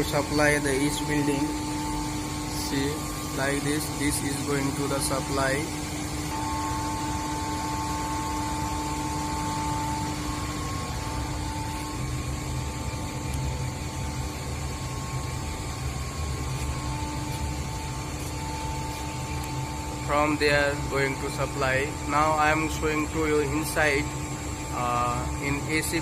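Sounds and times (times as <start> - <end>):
machinery hum with low rumble: 0.0 - 26.0
two steady tones: 6.2 - 17.9.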